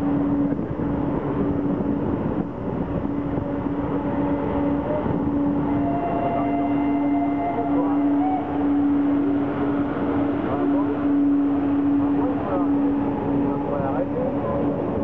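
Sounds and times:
low hum: 0.0 - 15.0
train rumbling: 0.0 - 15.0.

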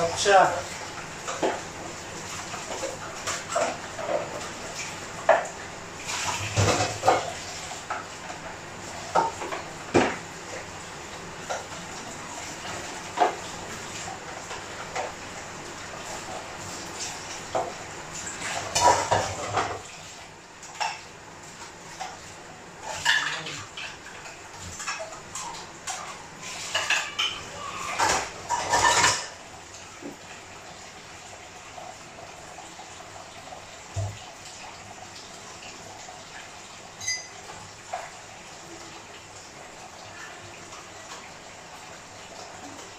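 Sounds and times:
dishes and cutlery clattering: 6.2 - 8.0, 18.5 - 19.9, 22.8 - 29.4, 37.0 - 38.0.

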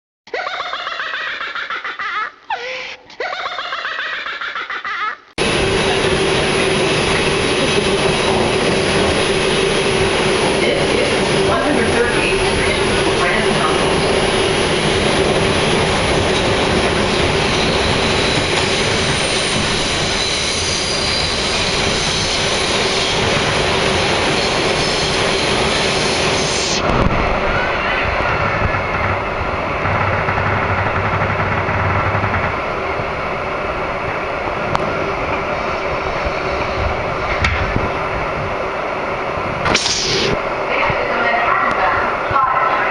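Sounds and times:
subway car rumbling on rails: 5.4 - 42.9
high hiss: 39.7 - 40.4.

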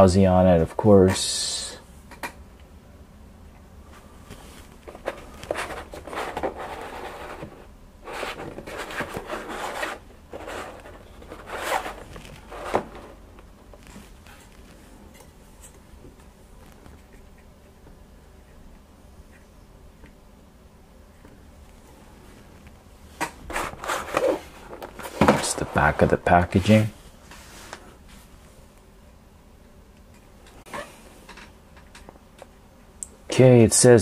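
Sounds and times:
faint low hum: 0.0 - 34.0
cardboard box rustling: 4.6 - 13.2.

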